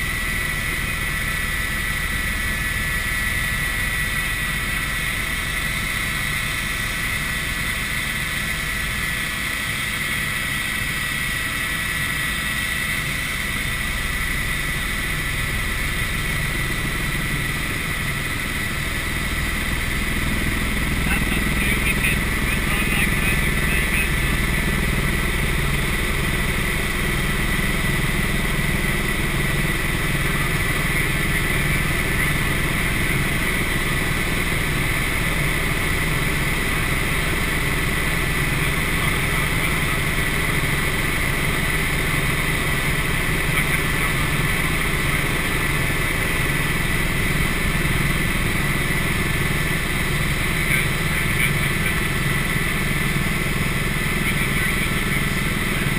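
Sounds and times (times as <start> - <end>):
helicopter engine and rotor drone: 0.0 - 55.9
high whine: 10.7 - 55.9.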